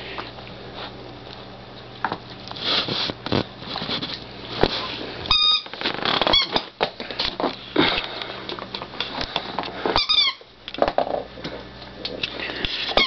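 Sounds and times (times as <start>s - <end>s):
squeaky toy squeak: 5.3s - 5.6s, 10.0s - 10.4s.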